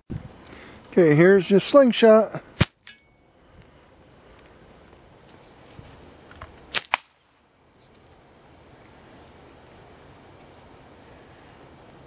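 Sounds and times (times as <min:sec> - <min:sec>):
faint outdoor background: 0:00.1 - 0:12.0
slingshot snaps: 0:06.7 - 0:07.2.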